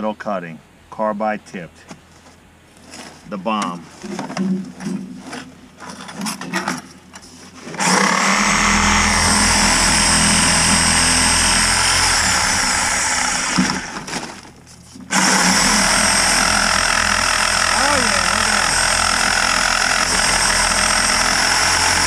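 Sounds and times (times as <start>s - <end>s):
reciprocating saw cutting metal pipe: 7.8s - 14.1s, 15.1s - 22.0s.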